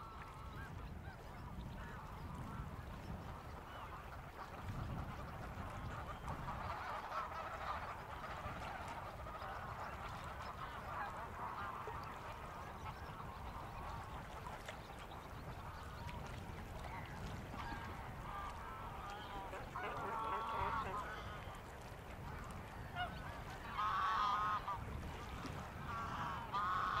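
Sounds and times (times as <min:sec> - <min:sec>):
geese honking: 0:17.6 - 0:21.8, 0:22.9 - 0:24.8, 0:25.7 - 0:27.0.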